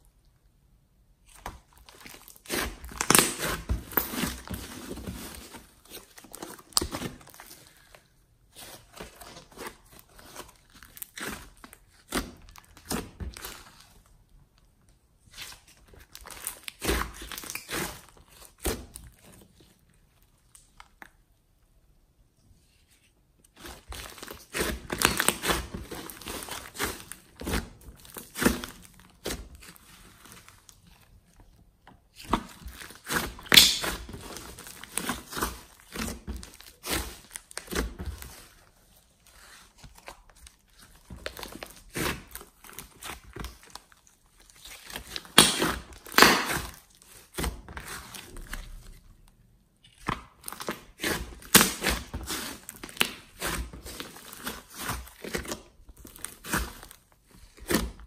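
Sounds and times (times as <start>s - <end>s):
slime crackling and popping: 1.3s - 4.8s, 32.1s - 38.0s, 40.3s - 48.8s.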